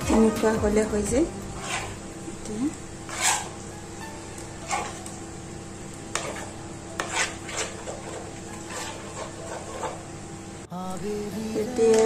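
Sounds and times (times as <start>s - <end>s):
metal spoon stirring thick batter: 1.6s - 2.0s, 3.0s - 3.6s, 6.1s - 10.0s.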